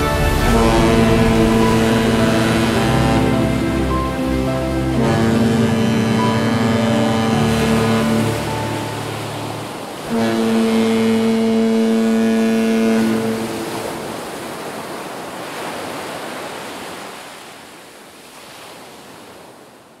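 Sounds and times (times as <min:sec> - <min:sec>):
low horn-like tone: 0:00.0 - 0:14.2
surf washing over rocks: 0:00.0 - 0:20.0.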